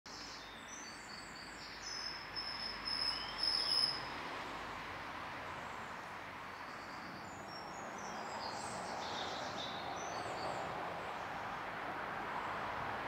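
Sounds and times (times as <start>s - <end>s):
small birds chirping: 5.6s - 11.4s.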